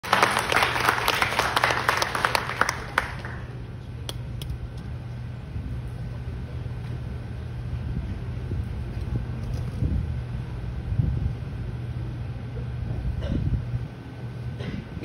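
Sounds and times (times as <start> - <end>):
audience applauding: 0.0 - 3.6
low hall hum: 0.0 - 15.0.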